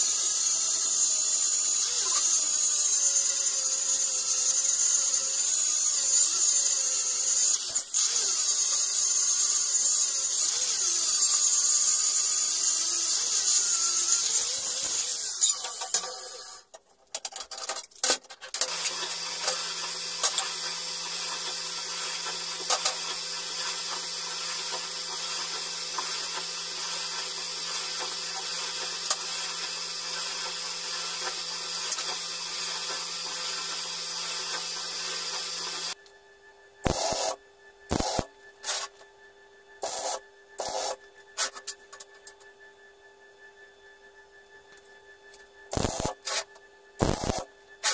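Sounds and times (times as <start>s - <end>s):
angle grinder cutting steel: 0.0s - 16.6s, 18.6s - 36.0s, 45.7s - 46.4s, 47.0s - 47.9s
faint hum: 36.0s - 47.9s.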